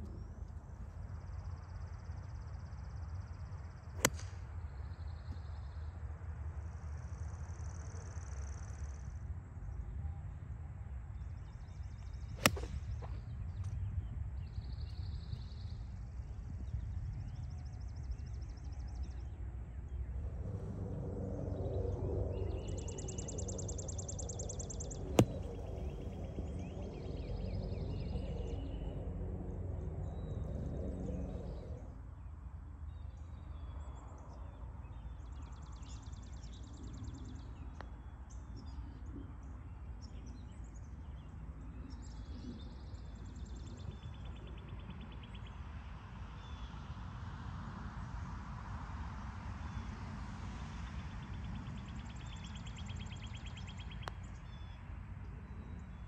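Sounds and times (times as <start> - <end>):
golf club striking ball: 4.0 - 4.4, 12.4 - 13.0, 25.2 - 26.0
low outdoor rumble: 19.6 - 32.0.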